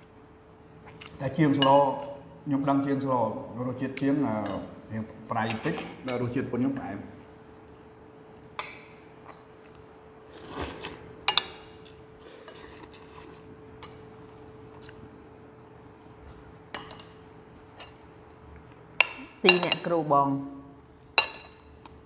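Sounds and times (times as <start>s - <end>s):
faint steady hum: 0.0s - 22.0s
spoons clinking on porcelain bowls: 5.4s - 6.3s, 16.7s - 18.0s, 19.0s - 19.9s, 21.2s - 21.7s.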